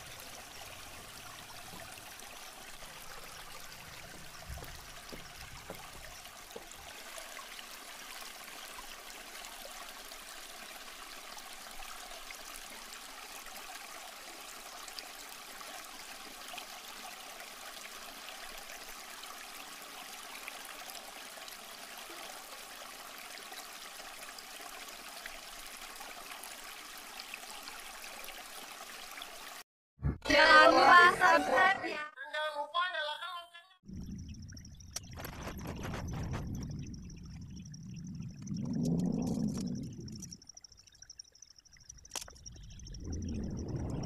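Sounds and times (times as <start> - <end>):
stream running over rocks: 0.0 - 29.6
faint clicks: 34.8 - 43.0.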